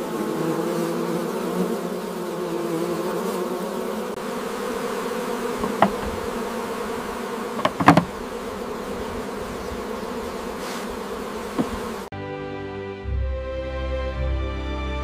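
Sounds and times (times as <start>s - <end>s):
honeybees buzzing: 0.0s - 12.1s
short knocks: 5.6s - 6.2s, 7.6s - 8.1s, 11.5s - 11.8s.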